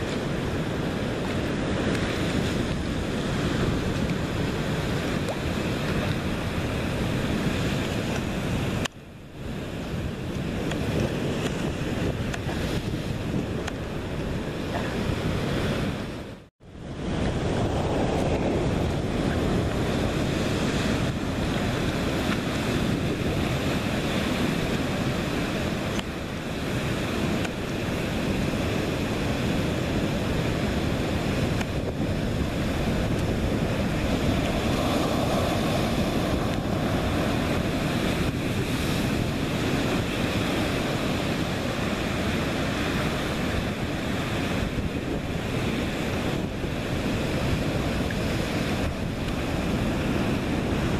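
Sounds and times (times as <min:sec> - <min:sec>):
heavy surf breaking on rocks: 0:00.0 - 0:50.9
wind buffeting microphone: 0:00.0 - 0:50.9.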